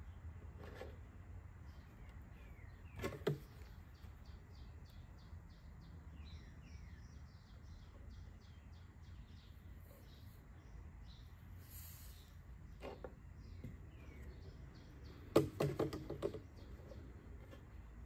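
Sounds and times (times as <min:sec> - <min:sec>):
birds chirping: 0:00.0 - 0:18.0.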